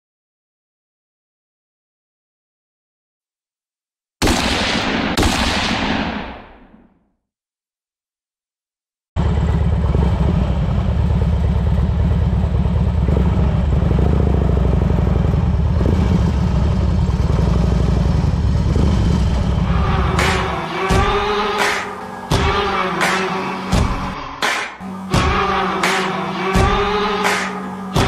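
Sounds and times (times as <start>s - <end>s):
motorcycle engine running: 9.2s - 28.0s
music with singing: 19.7s - 28.0s.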